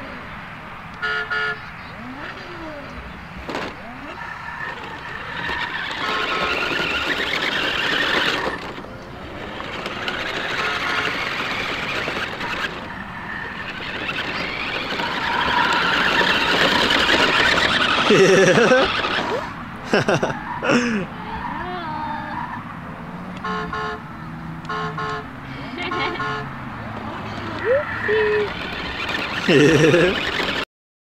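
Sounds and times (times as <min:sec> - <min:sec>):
toy car motor whining: 0:03.5 - 0:19.6, 0:27.0 - 0:30.7.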